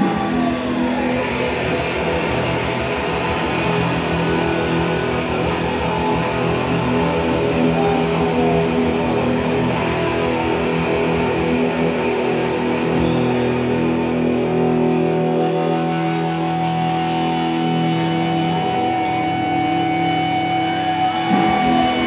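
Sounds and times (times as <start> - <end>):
distorted electric guitar chords: 0.0 - 22.0.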